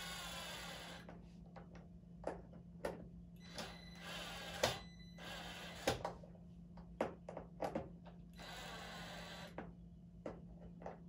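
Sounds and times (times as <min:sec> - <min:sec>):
cordless drill driving screws: 0:00.0 - 0:01.1, 0:03.5 - 0:06.0, 0:08.4 - 0:09.6.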